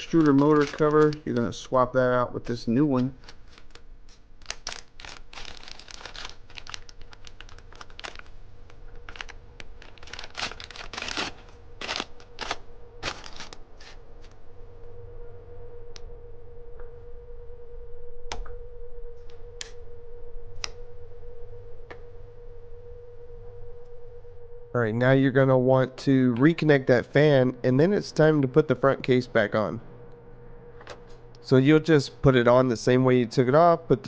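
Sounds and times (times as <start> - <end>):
plastic bag crinkling: 0.0 - 1.6, 2.4 - 14.3
steady hum: 0.0 - 34.0
sharp plastic clicks: 2.5 - 8.2.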